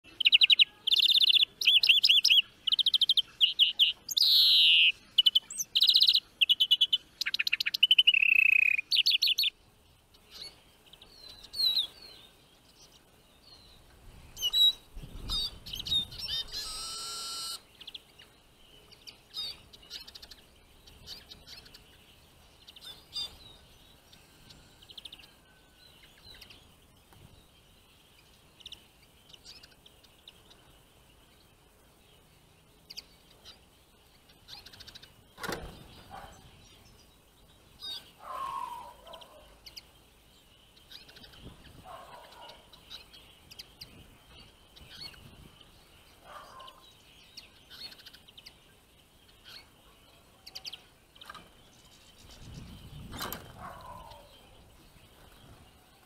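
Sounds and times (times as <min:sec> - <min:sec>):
finches chirping: 0:00.1 - 0:09.6, 0:10.2 - 0:55.7
songbird trilling: 0:00.1 - 0:09.6, 0:14.4 - 0:18.0, 0:37.8 - 0:39.9.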